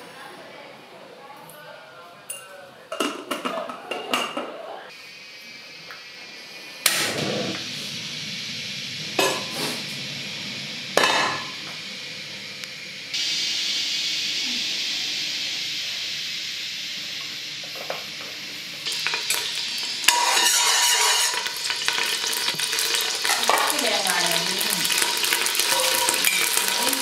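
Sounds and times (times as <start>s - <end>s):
gas burner whoosh and hiss: 4.9s - 27.0s
oil sizzling in a pot: 4.9s - 27.0s.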